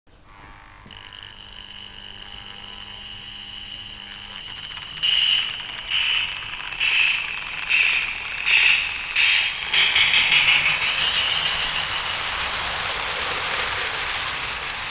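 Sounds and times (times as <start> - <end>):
model train motor whine: 0.1 - 14.9
low hum: 0.2 - 14.9
rhythmic steam hissing bursts: 1.0 - 14.9.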